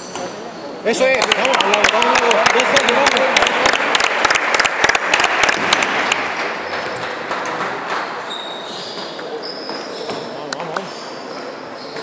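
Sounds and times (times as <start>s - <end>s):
people clapping: 1.0s - 7.7s
shoe squeaks on floor: 6.6s - 12.0s.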